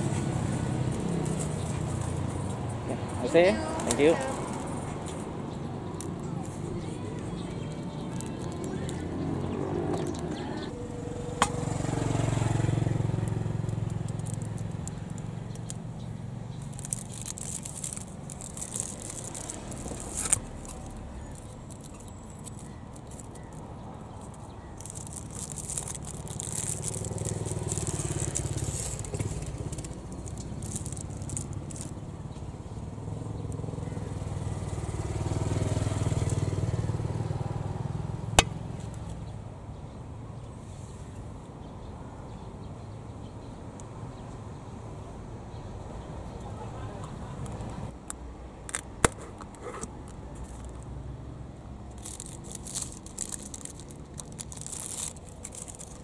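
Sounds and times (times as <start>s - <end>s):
motorcycles passing: 0.0s - 39.3s, 50.4s - 56.0s
vehicles passing: 0.0s - 56.0s
crackling: 13.1s - 32.5s, 51.9s - 56.0s.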